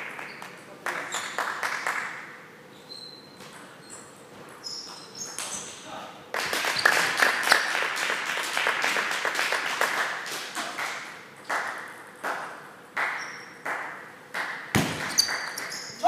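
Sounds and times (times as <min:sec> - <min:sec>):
crowd clapping: 0:00.0 - 0:02.2, 0:06.3 - 0:15.8
table tennis ball hits: 0:11.4 - 0:15.8.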